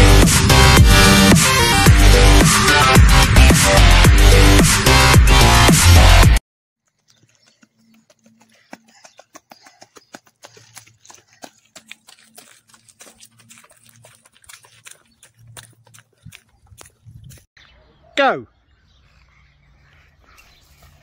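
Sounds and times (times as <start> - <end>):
footsteps crunching on gravel: 6.8 - 17.6, 18.8 - 21.0.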